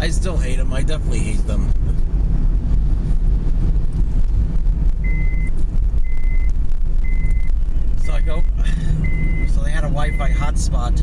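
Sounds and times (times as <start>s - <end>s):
road and engine rumble: 0.0s - 11.0s
high electronic beeps: 5.0s - 10.5s.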